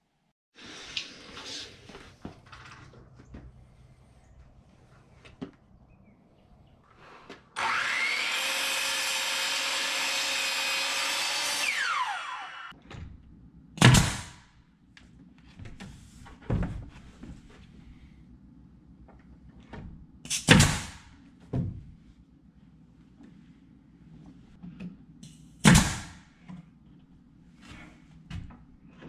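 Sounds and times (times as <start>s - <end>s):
miter saw cutting wood: 7.6s - 12.7s.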